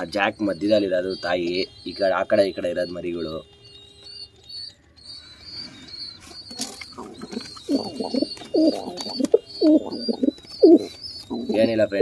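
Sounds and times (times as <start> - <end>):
pigeons cooing: 4.6 - 12.0.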